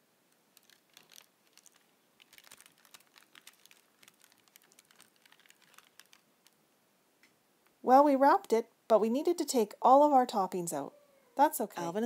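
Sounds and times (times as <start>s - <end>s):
paper wrapper crinkling: 0.3s - 6.6s.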